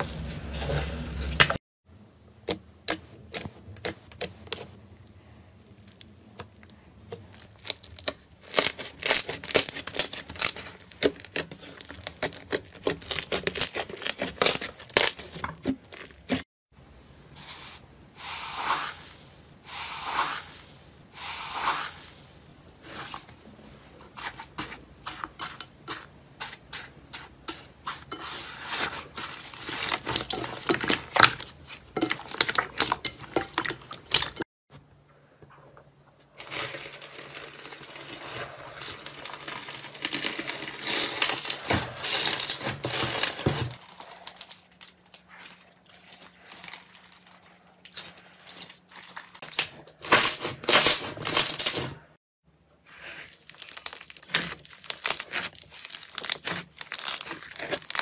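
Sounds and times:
crusty slime crackling: 7.3s - 16.4s, 36.4s - 51.9s, 52.9s - 58.0s.

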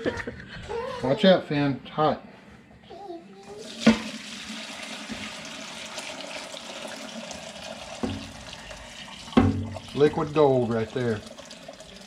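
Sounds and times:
knocks: 9.4s - 9.8s.

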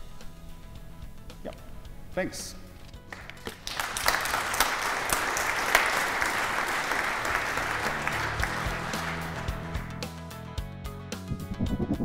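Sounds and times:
background music: 0.0s - 12.0s
audience applauding: 3.1s - 10.2s.

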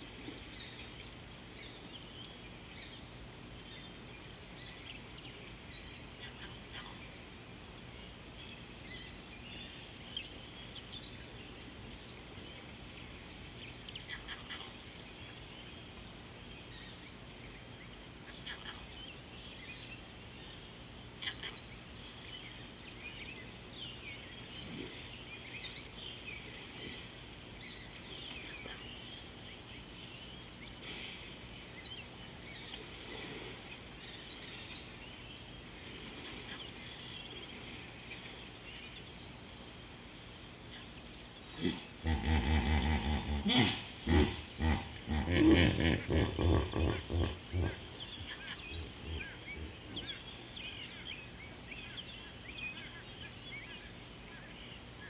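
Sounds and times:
birds chirping in chorus: 0.0s - 55.0s
faint low hum: 0.0s - 55.0s.

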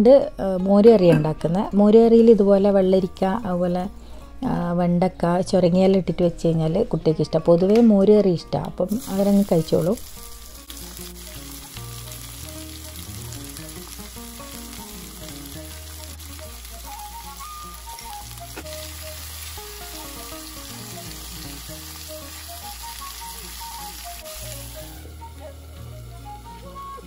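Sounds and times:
soft background music: 0.0s - 27.0s
food sizzling in a pan: 8.9s - 27.0s.

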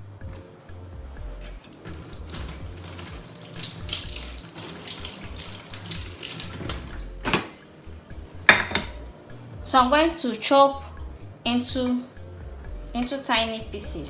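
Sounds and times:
tap water splashing: 1.8s - 7.5s.

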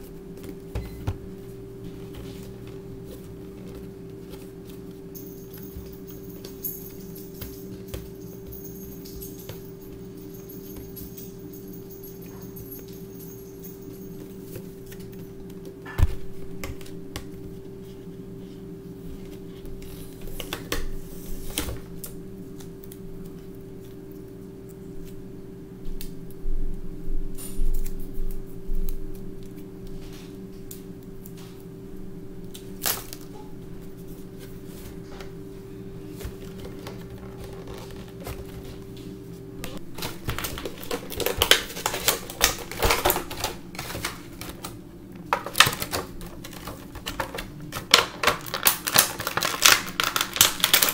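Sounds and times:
steady low hum: 0.0s - 50.9s
plastic packaging crinkling: 36.2s - 38.9s, 39.7s - 50.9s.

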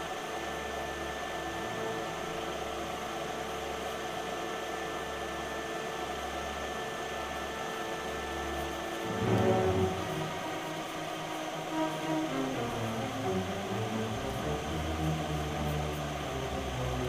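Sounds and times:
faint steady tones: 5.8s - 17.0s
low hum: 9.0s - 17.0s.

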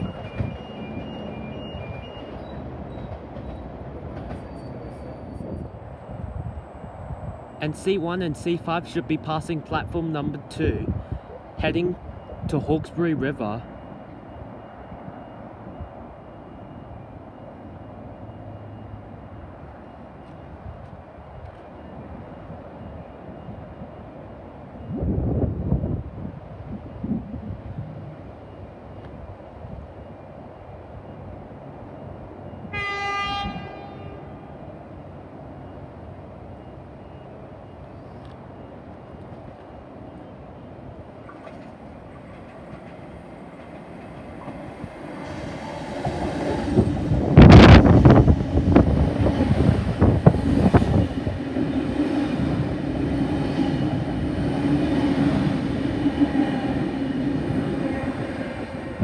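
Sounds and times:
train rumble: 0.0s - 59.0s
train horn blast: 32.7s - 34.5s.

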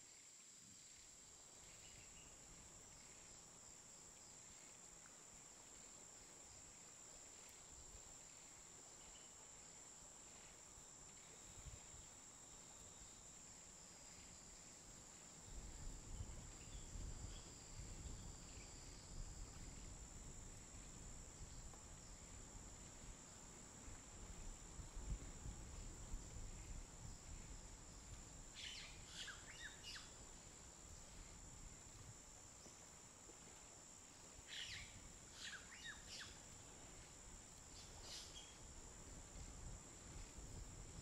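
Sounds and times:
insects trilling: 0.1s - 41.0s
faint chirps: 28.5s - 30.3s, 34.4s - 36.4s, 37.7s - 38.7s.

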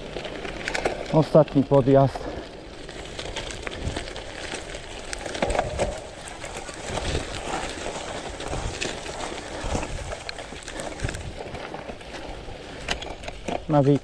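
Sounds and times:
tyres rumbling on rough ground: 0.0s - 14.0s
cyclist breathing hard: 2.3s - 13.0s
bike knocking over bumps: 2.8s - 14.0s.

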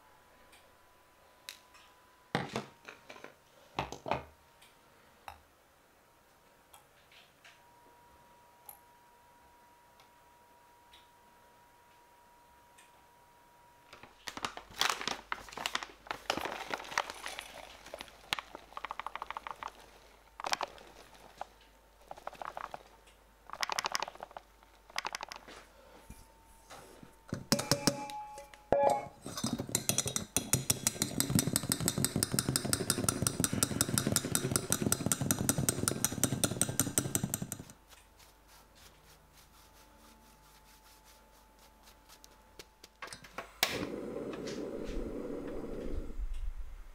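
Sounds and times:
sieve rattling: 16.1s - 23.0s.

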